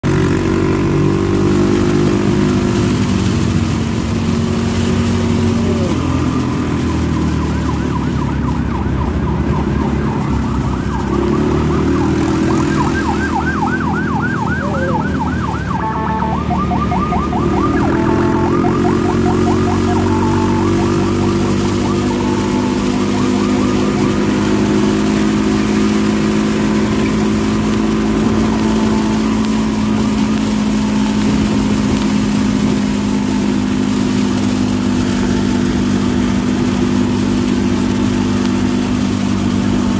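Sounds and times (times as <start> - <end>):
electronic siren warbling: 0.0 - 39.9
motor scooter engine droning: 0.0 - 39.9.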